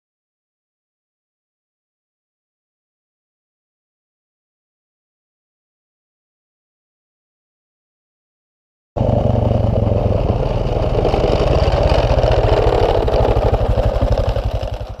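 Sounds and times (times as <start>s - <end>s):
atv engine passing by: 9.0s - 15.0s.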